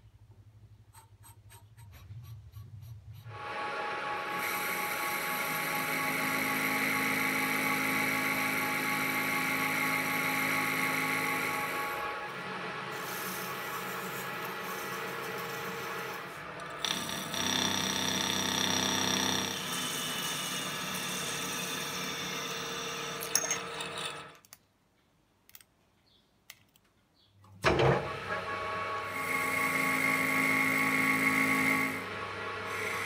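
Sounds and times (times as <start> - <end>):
metal lathe humming: 3.3 - 24.4, 28.6 - 33.0.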